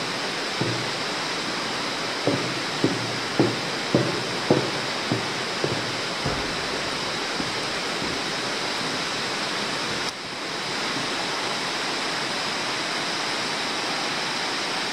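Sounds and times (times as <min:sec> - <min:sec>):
steady rushing hiss: 0:00.0 - 0:14.9
footsteps on walkway: 0:00.6 - 0:01.4, 0:02.2 - 0:10.1.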